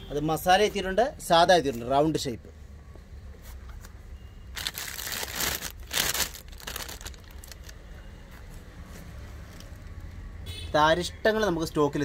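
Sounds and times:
plastic bag crinkling: 0:04.6 - 0:07.8.

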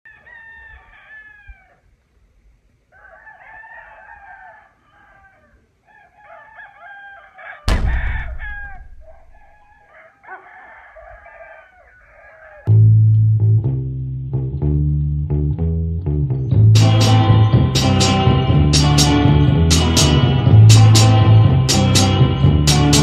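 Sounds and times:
rooster crowing: 0:00.1 - 0:01.8, 0:02.9 - 0:12.7
chicken calls: 0:02.9 - 0:07.7, 0:08.5 - 0:12.7
sudden loud hit: 0:07.7 - 0:09.8.

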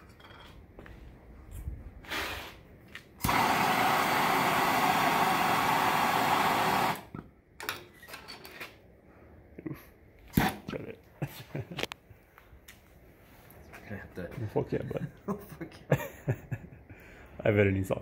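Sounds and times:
hissing torch flame: 0:02.0 - 0:07.1
torch igniter click: 0:03.2 - 0:07.1.

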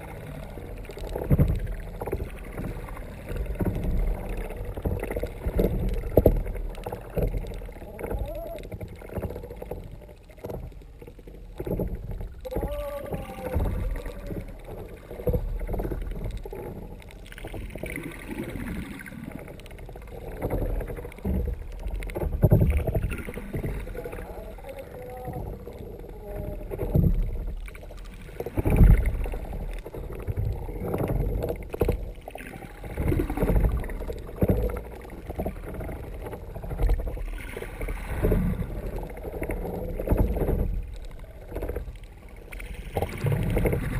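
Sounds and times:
muffled water rushing and sloshing: 0:00.0 - 0:43.9.

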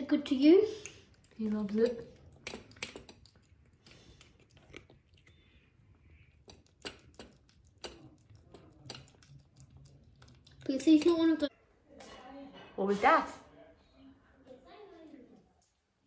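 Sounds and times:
kitten chewing food: 0:00.7 - 0:11.5.

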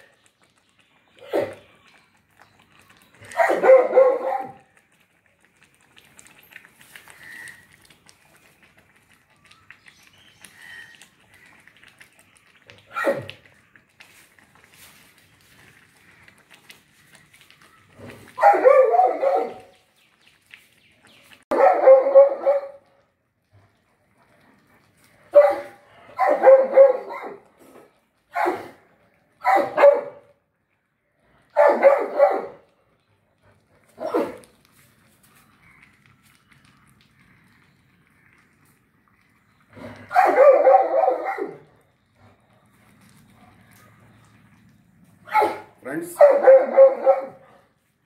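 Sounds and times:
dog barking: 0:03.3 - 0:04.7, 0:12.9 - 0:13.4, 0:18.4 - 0:19.7, 0:21.5 - 0:22.8, 0:25.3 - 0:27.4, 0:28.3 - 0:28.8, 0:29.4 - 0:30.3, 0:31.6 - 0:32.6, 0:34.0 - 0:34.4, 0:40.1 - 0:41.7, 0:45.3 - 0:47.7.

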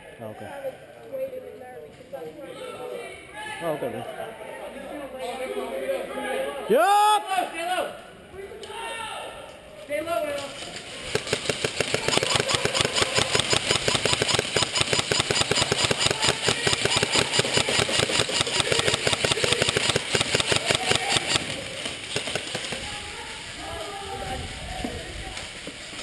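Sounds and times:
airsoft rifle firing full auto: 0:11.0 - 0:23.0.

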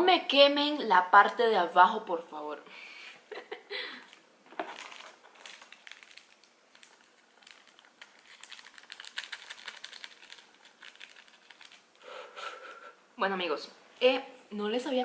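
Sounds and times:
pizza crust crackling as torn: 0:04.7 - 0:12.0.

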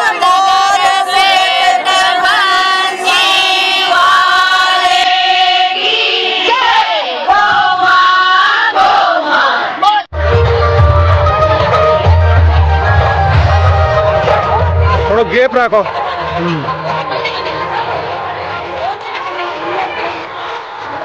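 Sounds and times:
women singing and chanting: 0:00.0 - 0:09.8.

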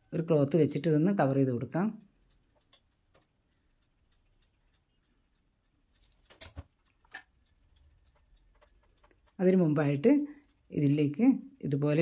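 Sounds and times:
faint clicks: 0:02.0 - 0:09.4.

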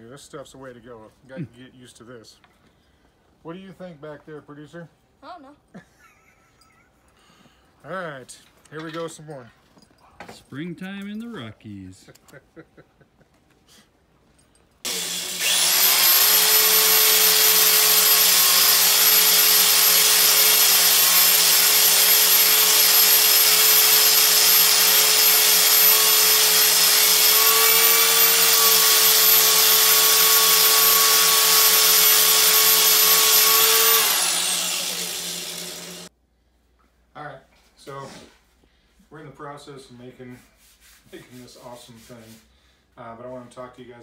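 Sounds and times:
rotary tool grinding wood: 0:14.9 - 0:36.1.

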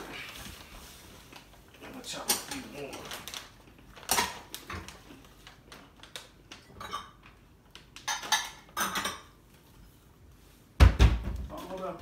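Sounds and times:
kitchenware clattering: 0:02.1 - 0:03.2, 0:06.6 - 0:07.4, 0:08.0 - 0:09.5.

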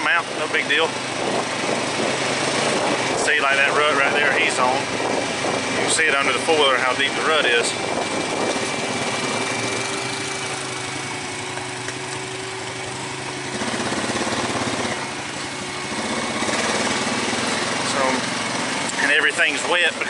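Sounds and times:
quad bike engine under load: 0:00.0 - 0:20.0.

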